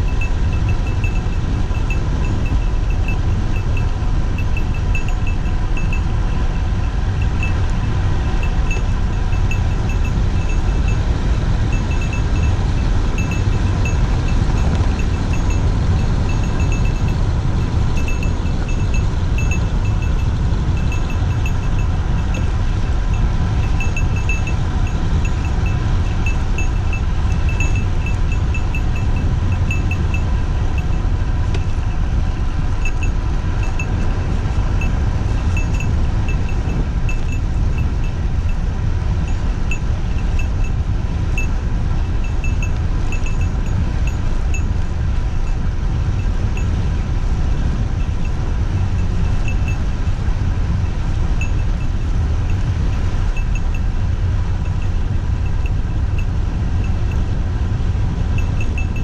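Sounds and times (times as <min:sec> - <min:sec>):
high-pitched ticking: 0:00.0 - 0:11.1, 0:11.7 - 0:32.2
wind rumble on microphone: 0:00.0 - 0:59.0.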